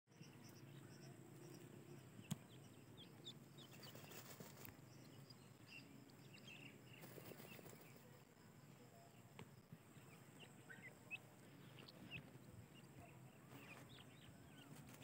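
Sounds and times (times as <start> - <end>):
birds scratching in dirt: 1.3 - 5.2, 6.1 - 8.3, 9.8 - 15.0.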